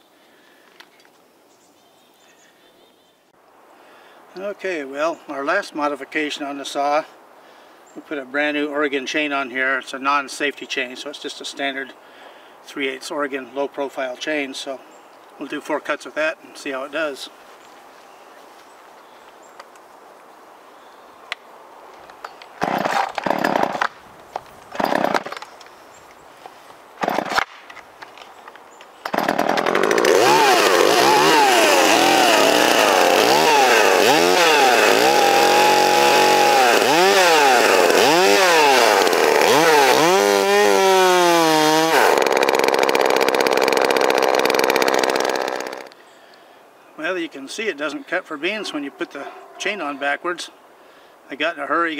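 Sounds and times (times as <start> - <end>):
chainsaw revving: 22.6 - 23.9, 24.8 - 25.4, 27.0 - 27.4, 29.0 - 46.0.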